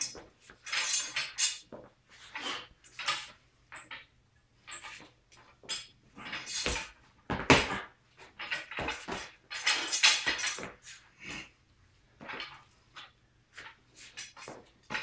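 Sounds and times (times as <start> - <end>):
knocks and clatter: 6.5 - 10.8.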